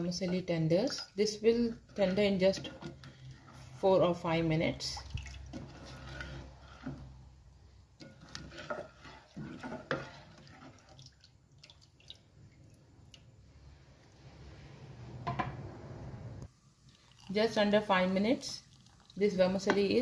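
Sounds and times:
liquid sloshing and dripping: 5.0s - 7.2s, 8.0s - 13.7s, 18.6s - 19.2s.

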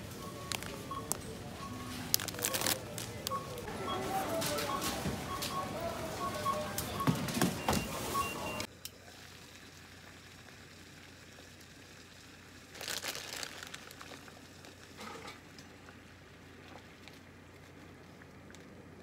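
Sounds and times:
plastic bag crinkling: 0.4s - 3.7s, 12.7s - 14.9s.

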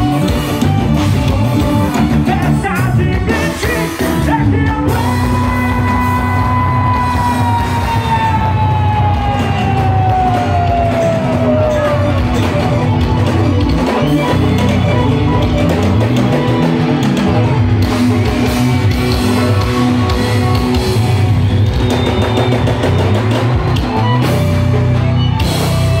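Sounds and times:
accordion: 0.0s - 5.2s, 11.7s - 26.0s
bass guitar: 0.0s - 26.0s
drums: 0.0s - 26.0s
electric guitar: 0.0s - 26.0s
keyboard: 0.0s - 26.0s.

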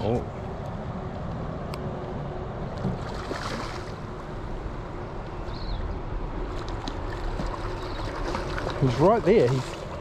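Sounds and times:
river water rushing: 3.0s - 4.8s.

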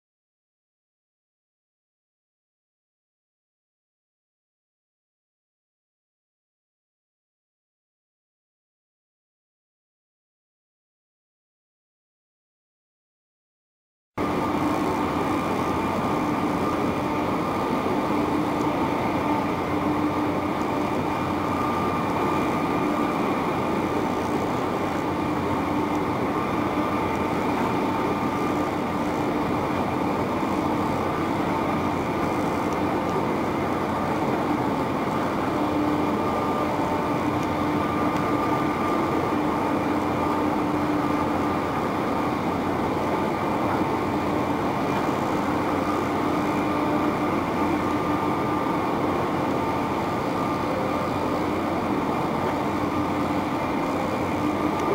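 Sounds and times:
ferry engines droning: 14.2s - 54.9s.

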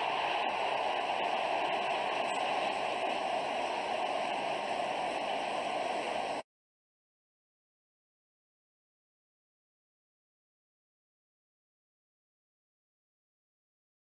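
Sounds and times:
stadium crowd cheering: 0.0s - 6.4s.

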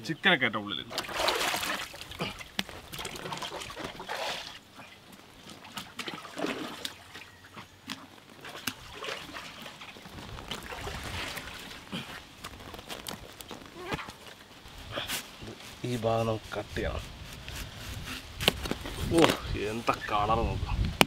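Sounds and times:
water splashing in a metal pot: 0.9s - 12.4s.

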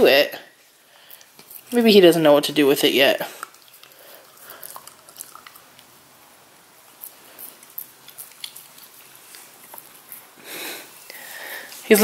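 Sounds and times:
puppy licking: 3.2s - 6.1s, 6.8s - 10.4s.

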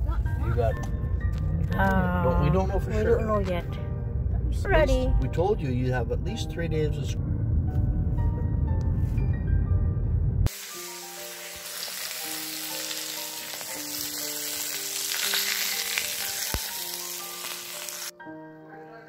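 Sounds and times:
slow background music: 0.0s - 19.0s
meat sizzling in a skillet: 10.5s - 18.1s.

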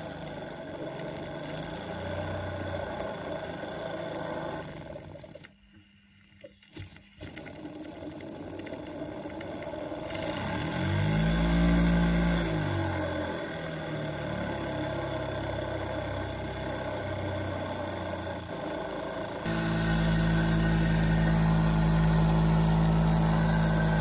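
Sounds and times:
model steam engine hissing: 14.4s - 24.0s.

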